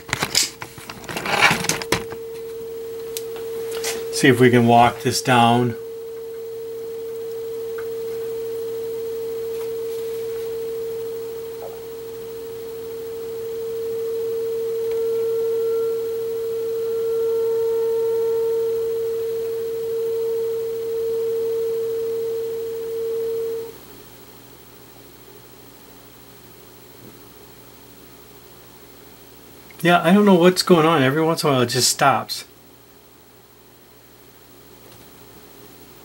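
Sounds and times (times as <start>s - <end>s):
radio test tone: 0.0s - 23.7s.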